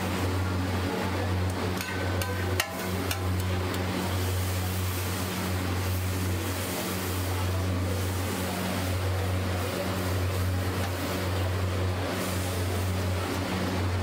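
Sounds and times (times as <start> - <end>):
metal spatula spreading: 1.8 - 3.4.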